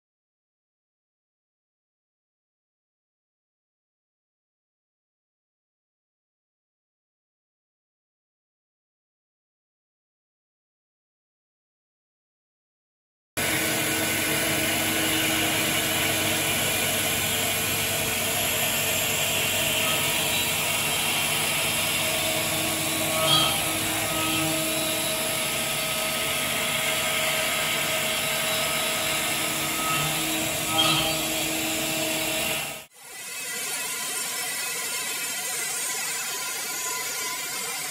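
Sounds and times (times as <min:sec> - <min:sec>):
end mill cutting steel: 0:13.4 - 0:37.8.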